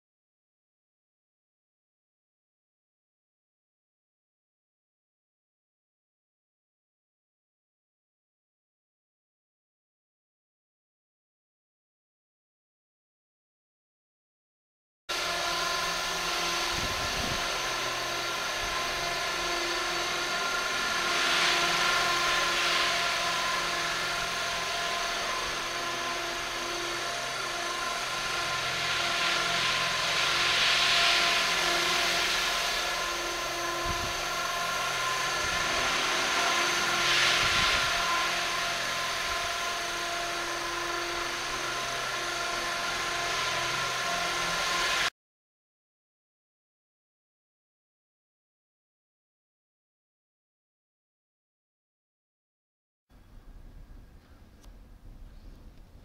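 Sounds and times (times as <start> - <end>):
rc helicopter motor whine: 15.1 - 45.1
rotor whirr: 15.1 - 45.1.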